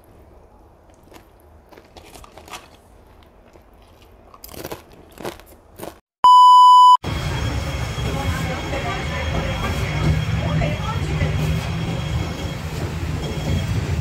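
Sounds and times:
wet chewing: 0.6s - 6.0s
loud test-pattern beep: 6.2s - 7.0s.

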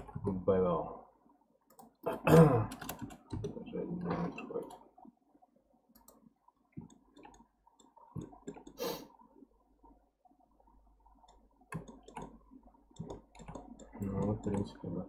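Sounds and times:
computer mouse clicks: 1.7s - 2.0s, 5.9s - 6.2s, 6.8s - 8.8s, 11.2s - 14.8s.

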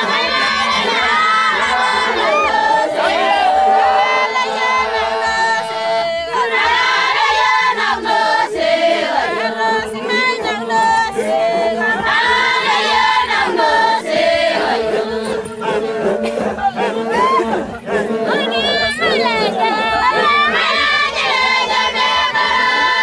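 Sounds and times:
group chanting: 0.0s - 23.0s.

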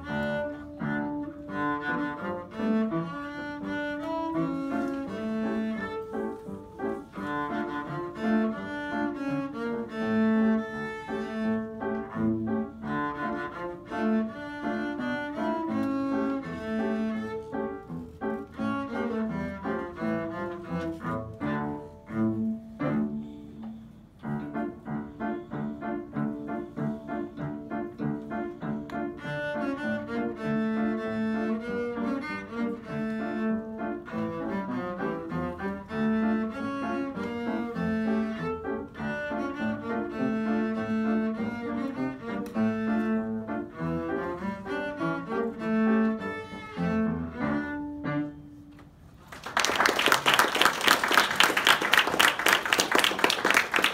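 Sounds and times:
cello and piano playing: 0.0s - 49.1s
audience applause: 49.2s - 53.9s.

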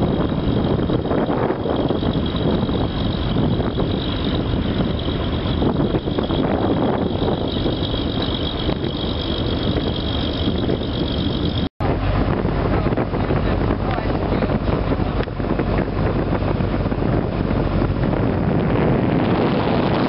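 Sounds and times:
boat engine running: 0.0s - 20.0s.

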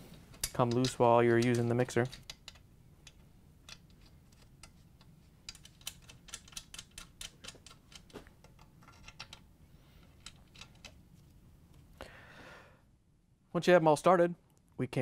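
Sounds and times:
small metal clicks of screws: 0.3s - 9.4s, 10.0s - 11.0s.

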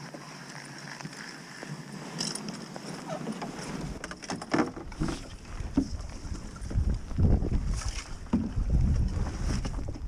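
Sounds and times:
wind on microphone: 4.8s - 10.0s.

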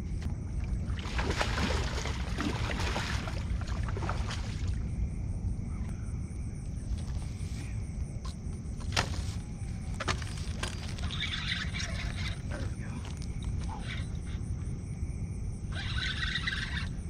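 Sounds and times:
steady low rumble: 0.0s - 11.0s, 12.1s - 15.7s.

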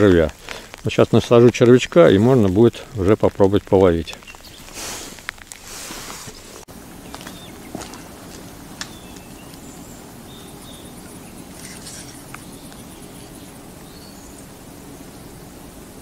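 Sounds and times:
high bird chirps: 8.8s - 14.5s.

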